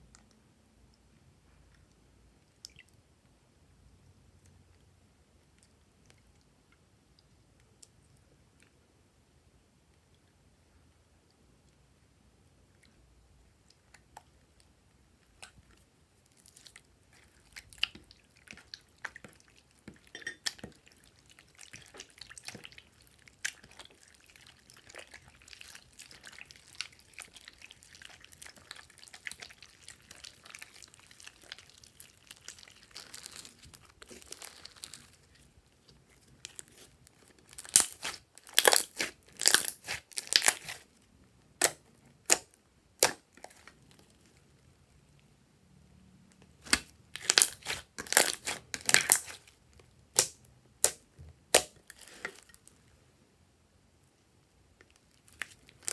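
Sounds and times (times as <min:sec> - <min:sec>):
slime squishing: 0:13.6 - 0:44.6, 0:46.5 - 0:52.8, 0:54.8 - 0:55.9
slime popping and crackling: 0:16.3 - 0:40.9, 0:41.5 - 0:43.8, 0:46.6 - 0:52.6, 0:55.1 - 0:55.9.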